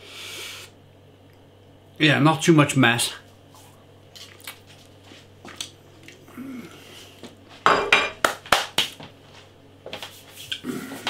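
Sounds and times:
plate clattering on hard surface: 0:07.7 - 0:08.2.

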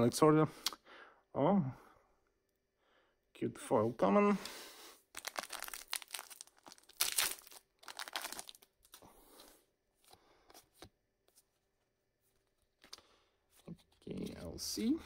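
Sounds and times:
wrapper tearing and crinkling: 0:05.2 - 0:09.0
cards sliding and rustling: 0:08.8 - 0:11.7.

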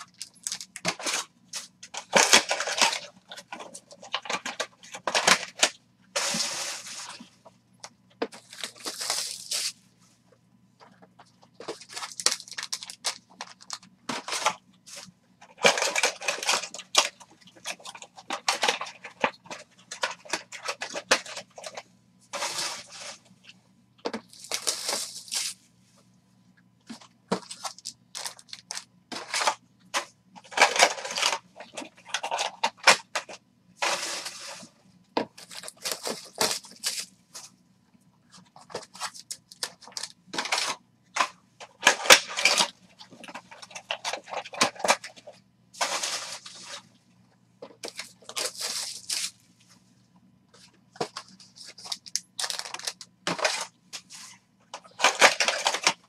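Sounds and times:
plastic wrap crinkling: 0:00.0 - 0:07.3, 0:08.3 - 0:09.8, 0:11.1 - 0:23.3, 0:24.0 - 0:25.6, 0:27.0 - 0:29.6, 0:30.4 - 0:37.5, 0:38.3 - 0:40.8, 0:47.8 - 0:49.4, 0:51.0 - 0:56.0
faint low hum: 0:00.0 - 0:56.0.

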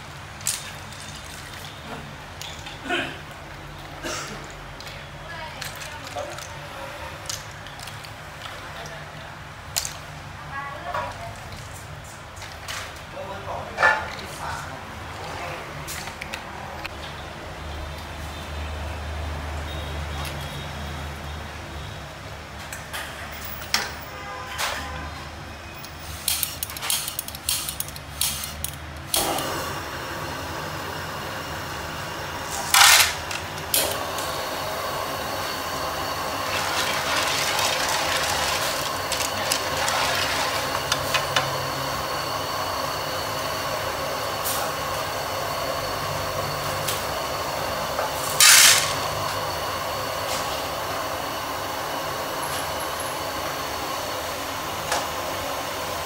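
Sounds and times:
gas burner roaring: 0:25.8 - 0:56.0.

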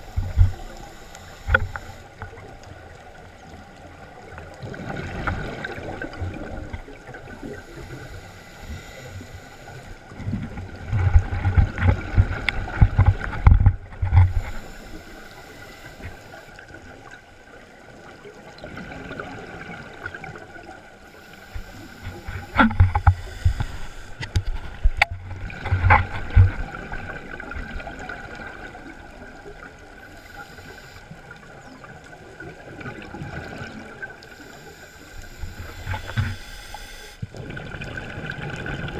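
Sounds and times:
exhaled bubbles underwater: 0:00.0 - 0:08.1, 0:16.6 - 0:20.9, 0:21.7 - 0:30.1, 0:31.2 - 0:34.5, 0:37.2 - 0:38.9
regulator hiss and gurgle: 0:00.0 - 0:38.9.

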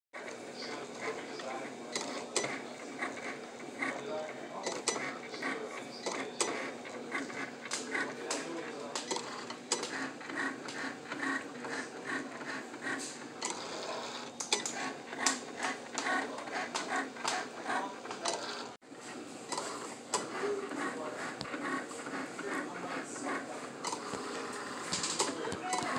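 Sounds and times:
cutting machine motors whirring: 0:00.2 - 0:25.9.

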